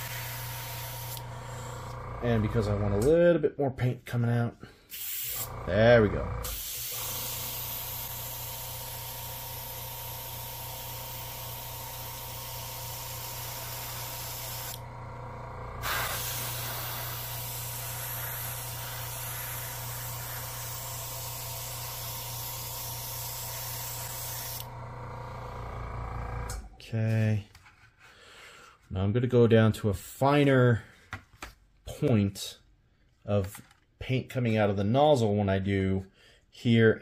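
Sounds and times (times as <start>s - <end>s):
steady low hum: 0.0s - 3.2s, 5.4s - 26.8s
airbrush spraying hiss: 4.9s - 5.5s, 15.8s - 24.6s.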